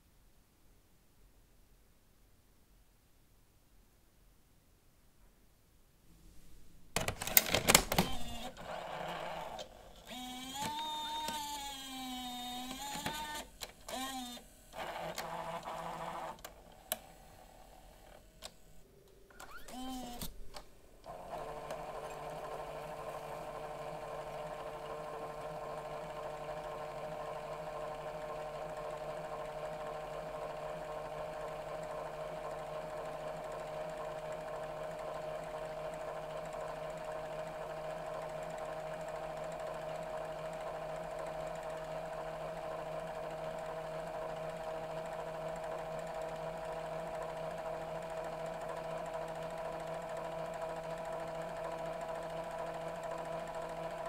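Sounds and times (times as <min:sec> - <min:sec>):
camcorder rewinding tape whine: 0:07.0 - 0:33.2.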